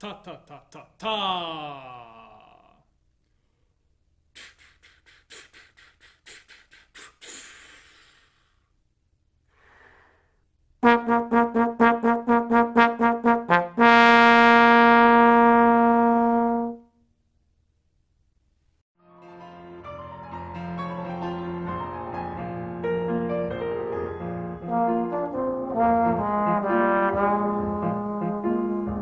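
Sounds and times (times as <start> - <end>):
tongued puffs of air: 4.3 - 8.8
breath in: 4.4 - 8.8, 9.4 - 10.5
trombone playing repeated notes: 10.8 - 16.9, 24.6 - 29.0.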